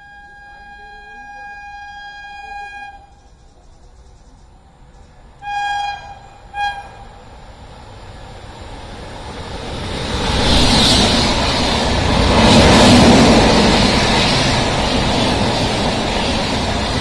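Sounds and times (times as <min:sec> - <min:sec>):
train horn blasts: 0:00.0 - 0:03.3, 0:05.4 - 0:07.2
rumble of oncoming train: 0:00.0 - 0:17.0.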